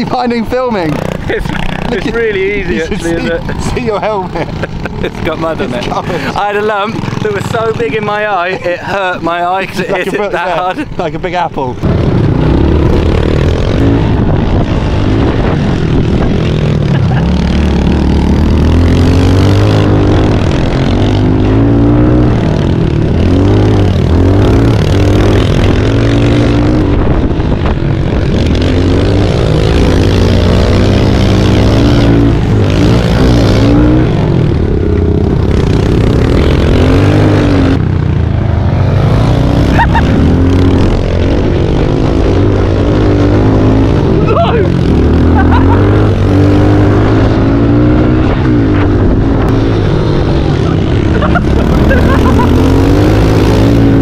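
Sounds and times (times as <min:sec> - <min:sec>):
pit bike engines revving: 0:00.0 - 0:54.0.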